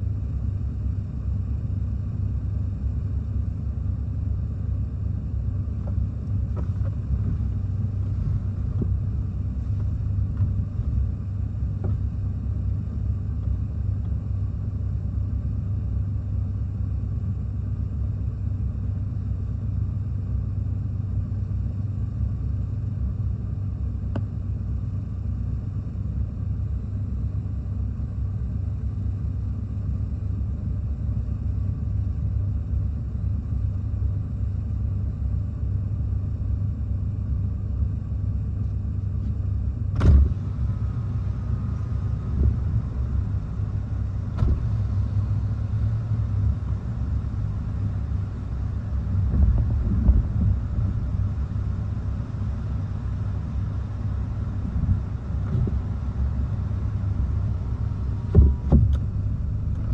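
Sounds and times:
strong wind buffeting microphone: 49.0 - 51.8, 54.5 - 59.9.

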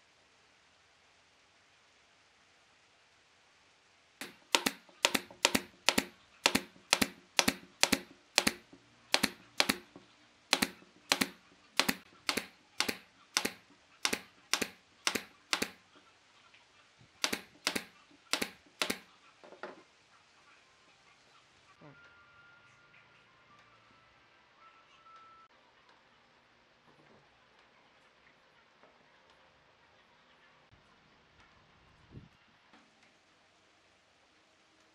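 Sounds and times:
nail gun firing into wood: 4.2 - 15.8, 17.2 - 19.1.

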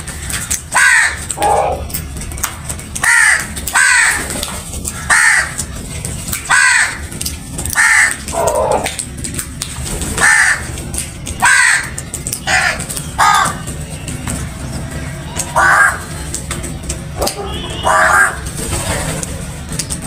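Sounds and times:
crows cawing: 0.7 - 1.8, 3.0 - 4.3, 4.9 - 5.6, 6.4 - 7.0, 7.7 - 8.9, 10.2 - 10.7, 11.4 - 13.6, 15.5 - 16.1, 17.8 - 18.4.

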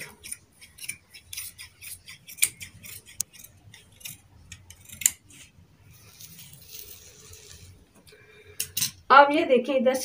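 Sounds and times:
scissors snipping fabric: 0.0 - 5.5.

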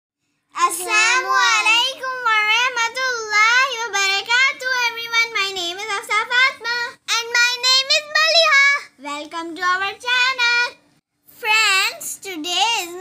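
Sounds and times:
child singing: 0.6 - 2.5.

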